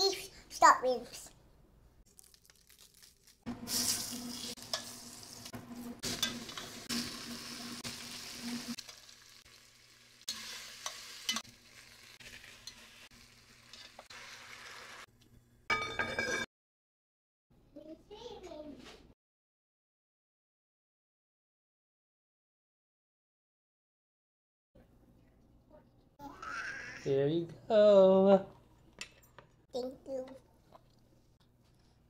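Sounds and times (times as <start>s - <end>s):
food sizzling in a pot: 2.2s - 15.1s.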